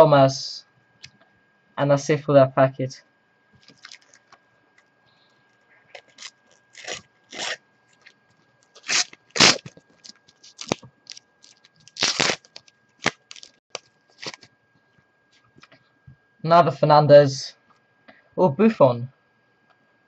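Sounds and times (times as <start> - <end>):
sticker packet wrapper crinkling: 3.6 - 4.3, 5.9 - 14.5.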